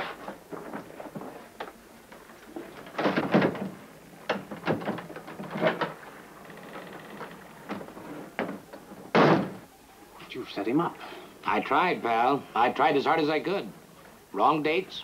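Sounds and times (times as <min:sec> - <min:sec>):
knocks and clunks: 0:02.5 - 0:06.0, 0:06.7 - 0:09.6.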